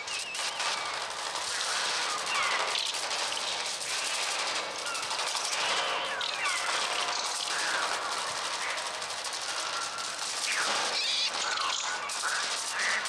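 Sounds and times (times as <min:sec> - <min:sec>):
synthesized birds screeching: 0:05.8 - 0:08.8, 0:09.8 - 0:13.0.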